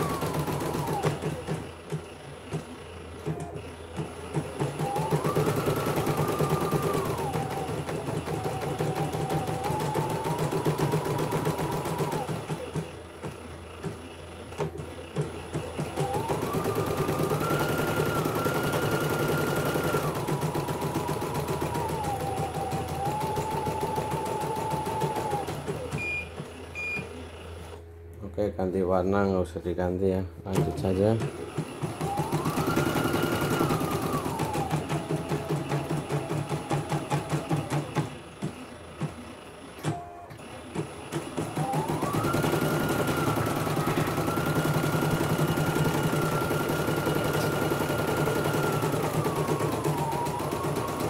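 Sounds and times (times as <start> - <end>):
embroidery machine stitching: 0.0 - 27.8, 30.5 - 51.0
machine beeping: 0.0 - 27.9, 30.5 - 51.0.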